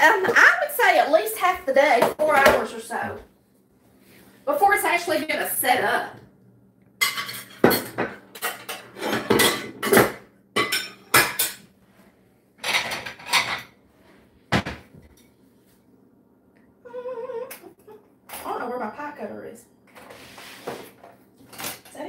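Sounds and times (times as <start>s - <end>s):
dishes and cutlery clattering: 7.0s - 11.7s, 12.6s - 13.8s, 21.4s - 22.0s.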